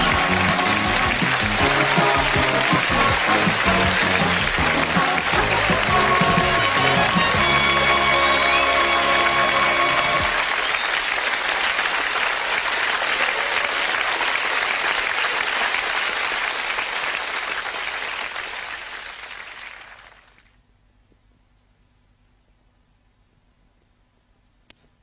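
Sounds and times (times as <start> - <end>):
theme music: 0.0 - 10.6
audience applause: 0.0 - 20.6.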